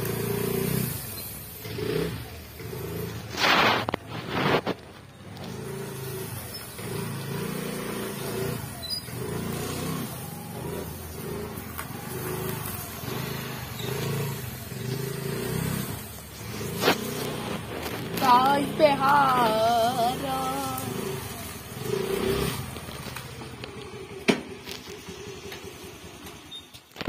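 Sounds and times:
scooter engine revving: 0:00.0 - 0:27.0
short loud burst of noise: 0:03.0 - 0:04.8.

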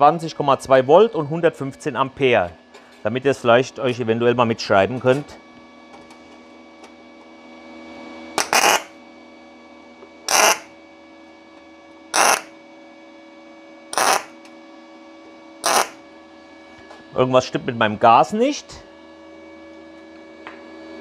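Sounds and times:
welding arc crackling bursts: 0:08.4 - 0:08.9, 0:10.3 - 0:10.7, 0:12.2 - 0:12.5, 0:14.0 - 0:14.3, 0:15.6 - 0:16.0
welder hum: 0:08.4 - 0:09.0, 0:10.2 - 0:10.8, 0:12.1 - 0:12.6, 0:13.9 - 0:14.5, 0:15.6 - 0:16.0.

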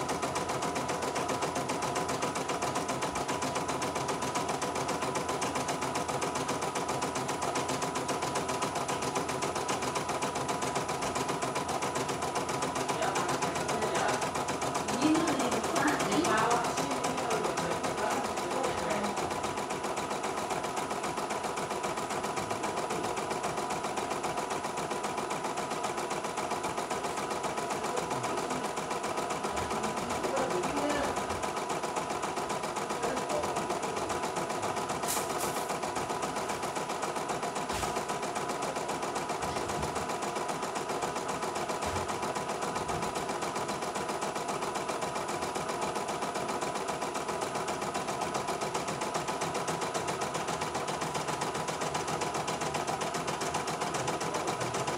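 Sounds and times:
embroidery machine needle hammering: 0:00.0 - 0:54.9
machine whir: 0:00.0 - 0:54.9.

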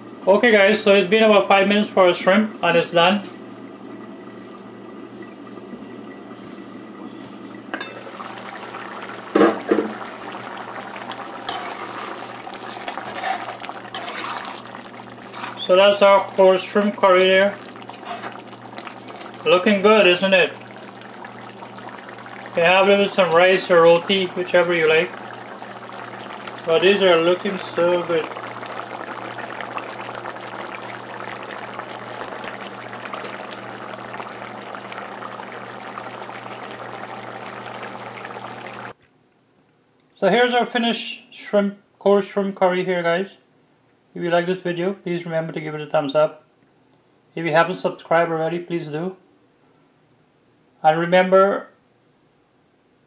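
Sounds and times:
curry bubbling in pot: 0:07.8 - 0:39.0.

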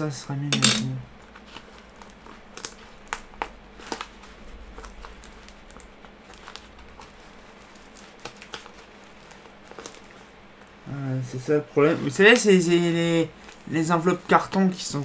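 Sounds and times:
fingers tearing cardboard envelope: 0:01.3 - 0:10.2.

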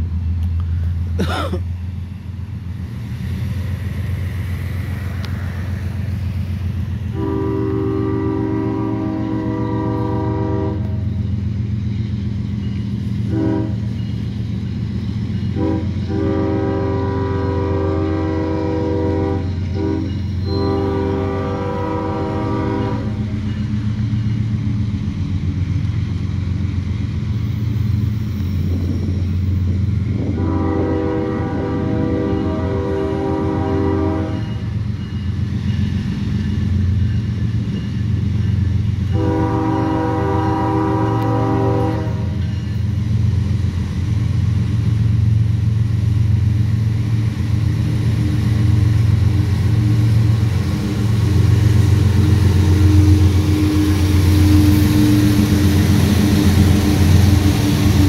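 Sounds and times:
diesel engines rumbling: 0:00.0 - 0:58.0
train air horn blasts: 0:07.1 - 0:11.1, 0:13.2 - 0:13.9, 0:15.5 - 0:23.3, 0:30.2 - 0:34.7, 0:39.1 - 0:42.4, 0:49.2 - 0:58.0.

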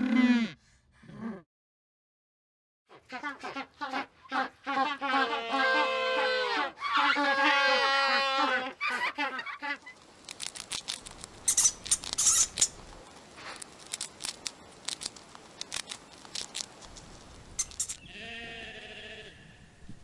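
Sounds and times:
guinea pig crunching food: 0:07.0 - 0:18.0
sheep bleating: 0:18.1 - 0:19.7.

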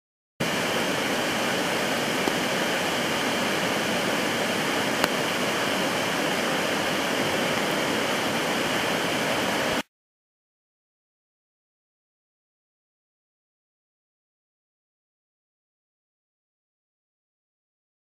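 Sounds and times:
rushing waterfalls and river: 0:00.4 - 0:09.8.

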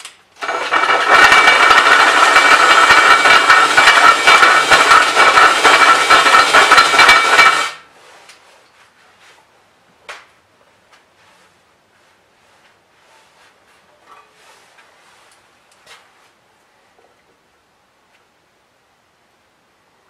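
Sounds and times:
drill cutting metal: 0:00.4 - 0:07.8.

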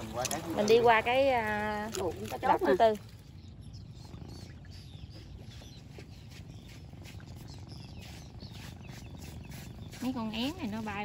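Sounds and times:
low steady rumble: 0:00.0 - 0:11.0
swallows chirping: 0:00.0 - 0:11.0.

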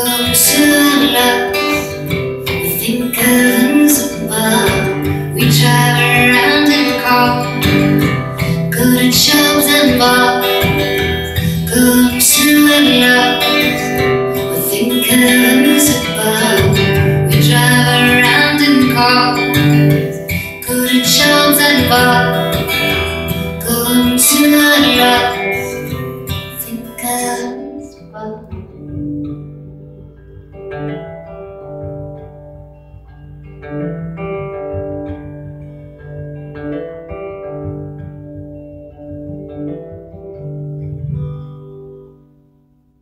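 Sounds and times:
woman singing: 0:00.0 - 0:29.3
acoustic guitar strumming: 0:00.0 - 0:43.0.

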